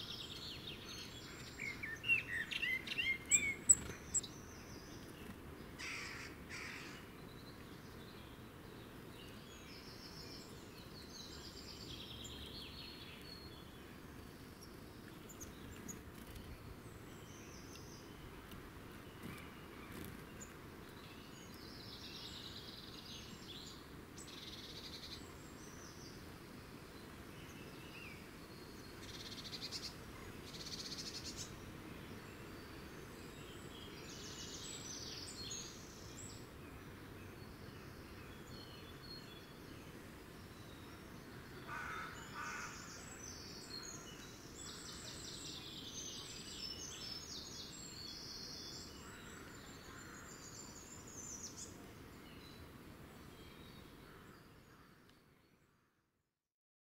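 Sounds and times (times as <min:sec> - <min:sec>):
songbirds chirping and singing: 0:00.0 - 0:26.2.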